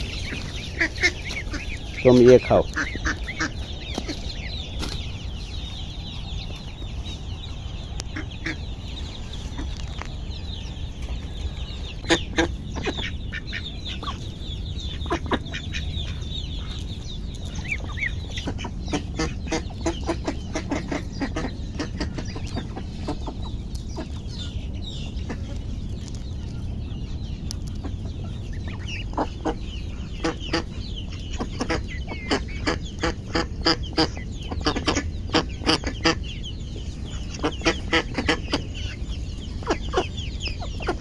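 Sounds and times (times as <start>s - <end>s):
chickens clucking: 0.0s - 41.0s
chicks peeping: 0.0s - 41.0s.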